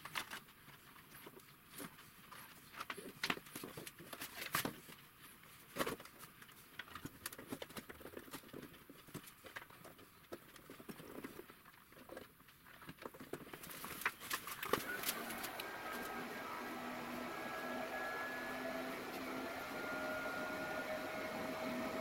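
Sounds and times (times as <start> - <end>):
induction heater electrical hum: 13.7 - 22.0.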